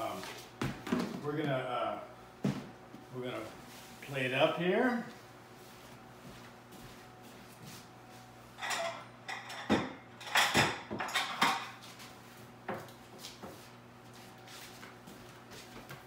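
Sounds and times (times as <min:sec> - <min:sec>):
dishes and cookware clattering: 0:08.6 - 0:11.8.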